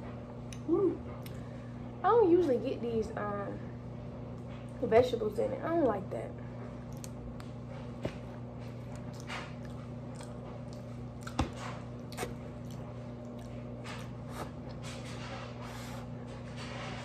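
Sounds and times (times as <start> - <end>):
person chewing food: 6.8 - 14.8.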